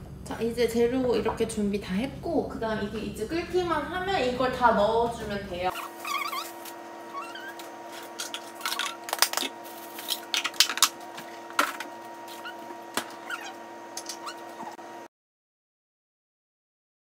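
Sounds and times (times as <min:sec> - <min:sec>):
steady hum: 0:00.0 - 0:15.1
faint squeaks: 0:05.7 - 0:07.6.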